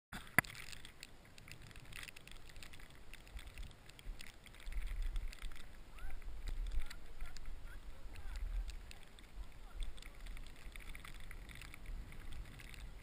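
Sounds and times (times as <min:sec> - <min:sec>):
small ticks and clicks: 0:00.1 - 0:13.0
skis scraping over snow: 0:01.2 - 0:13.0
wind rumble on microphone: 0:02.9 - 0:13.0.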